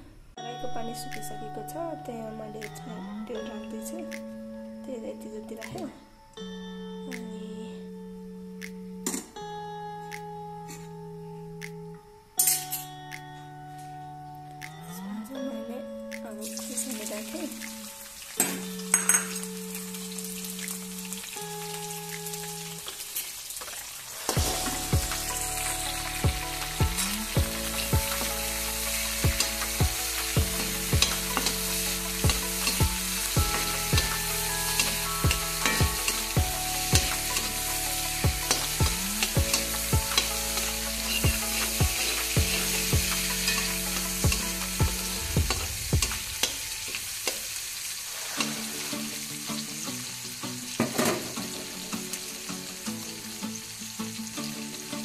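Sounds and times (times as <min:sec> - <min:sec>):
chillies sizzling in hot oil: 0:16.2 - 0:55.0.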